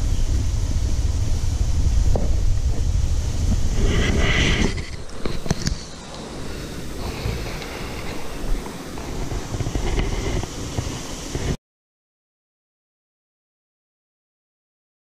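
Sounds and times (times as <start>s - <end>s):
water rushing: 0.0s - 11.6s
wind buffeting microphone: 0.0s - 11.6s.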